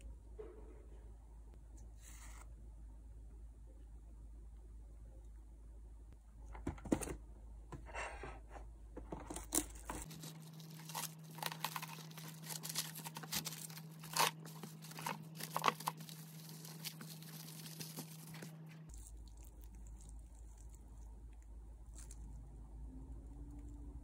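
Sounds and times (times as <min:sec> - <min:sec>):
plastic cling wrap crinkling: 0:09.2 - 0:21.0.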